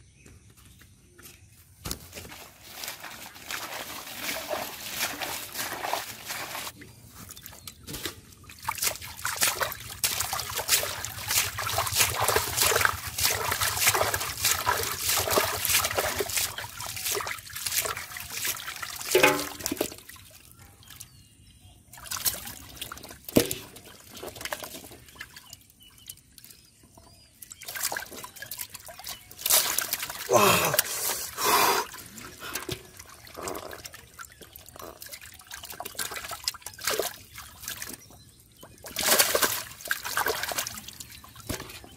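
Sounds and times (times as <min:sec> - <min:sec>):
water trickling and dripping: 0:02.3 - 0:21.3, 0:21.9 - 0:30.3, 0:31.9 - 0:41.9
hands splashing in water: 0:07.4 - 0:20.0, 0:27.6 - 0:31.8.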